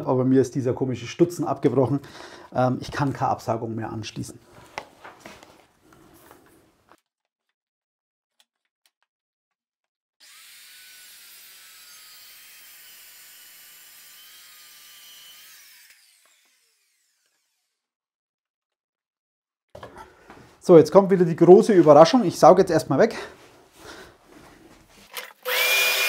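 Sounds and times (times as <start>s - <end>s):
saw blade spinning down: 10.2s - 17.8s, 25.4s - 26.0s
circular saw cutting: 10.2s - 17.9s, 25.4s - 26.0s.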